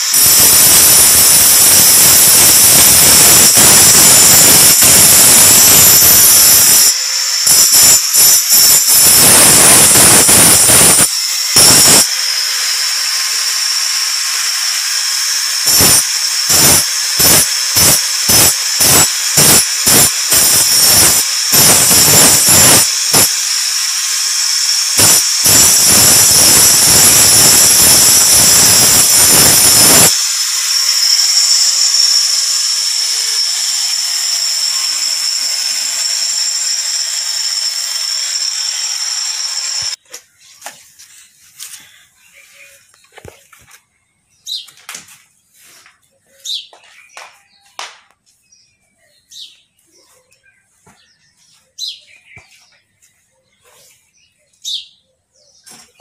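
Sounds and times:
angle grinder whining: 0.0 - 40.0
grinder disc grinding steel blade: 0.0 - 43.7.

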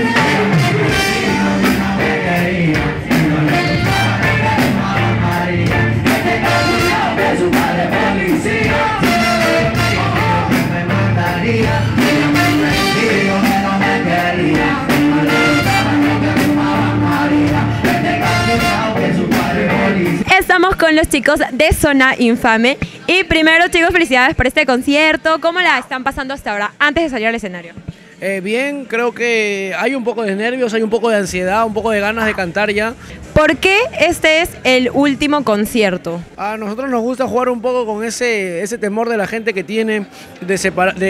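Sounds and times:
music with steady beat: 0.0 - 20.3
person singing: 0.0 - 20.3.

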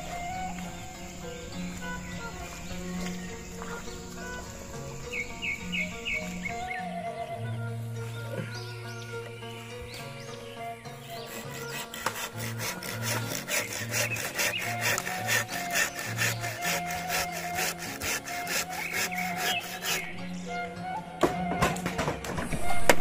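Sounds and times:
background music with bass notes: 0.0 - 23.0
hand saw cutting bamboo: 11.0 - 20.2.

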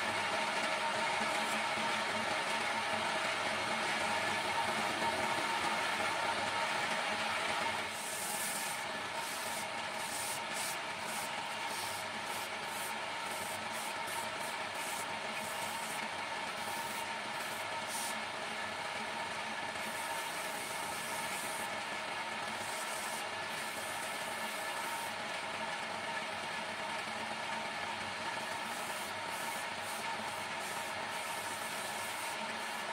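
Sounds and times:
sandpaper scratching turning wood: 7.9 - 16.0, 28.6 - 32.9.

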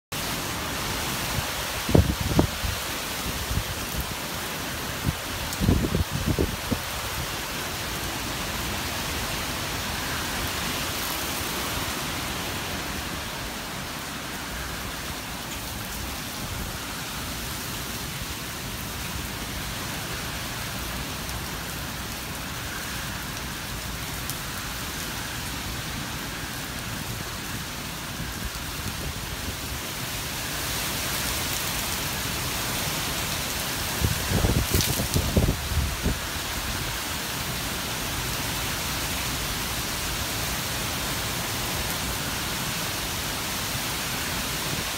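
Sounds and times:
heavy rain on grass and pavement: 0.0 - 44.9.

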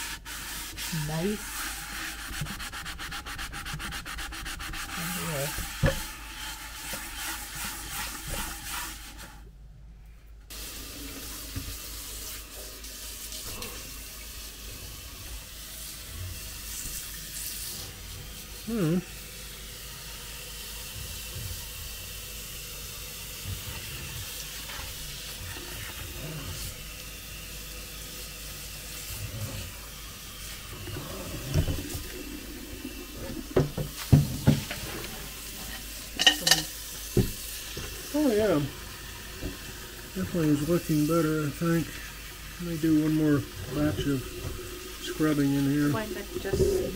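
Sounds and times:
sponge scrubbing wet pot: 0.0 - 9.5, 10.5 - 46.9
pot knocking: 33.3 - 34.8, 36.2 - 37.4.

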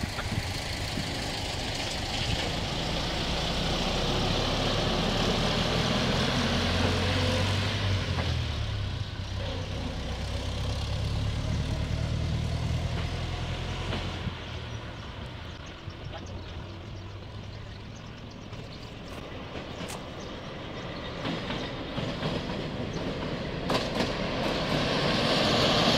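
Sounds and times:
rail vehicle engine humming: 0.0 - 25.9.

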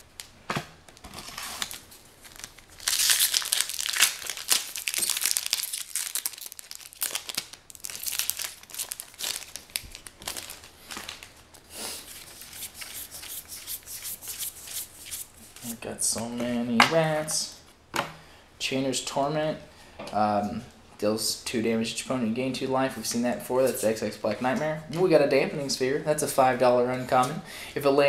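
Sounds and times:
foil wrapper tearing and crinkling: 1.0 - 11.4.

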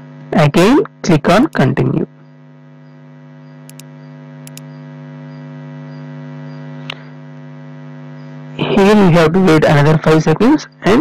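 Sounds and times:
steady electrical hum: 0.0 - 11.0
computer mouse clicks: 3.7 - 4.7.

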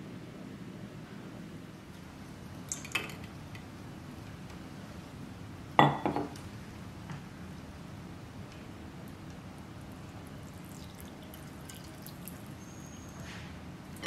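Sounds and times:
tableware clinking: 5.8 - 6.4.

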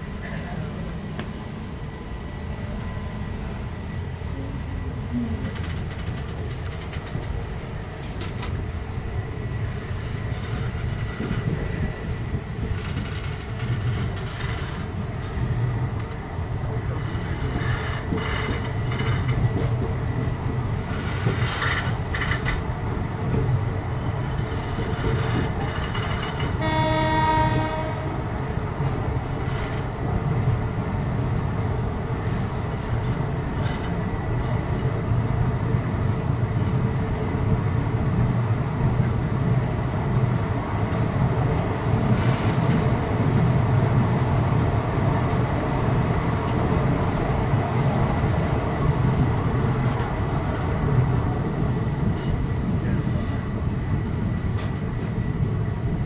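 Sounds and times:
train coaches rumbling: 0.0 - 56.0
train horn: 26.6 - 28.3.

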